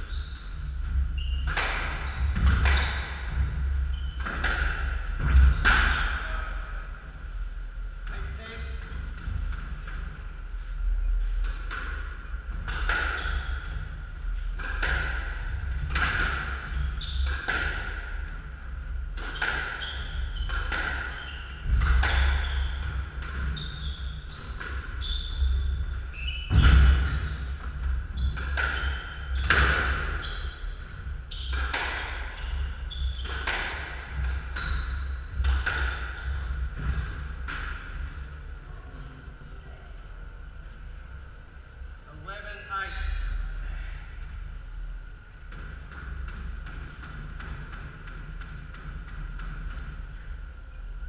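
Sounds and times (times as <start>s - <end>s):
squash ball hitting rackets and walls: 0.6s - 6.2s, 11.3s - 38.1s, 45.5s - 50.3s.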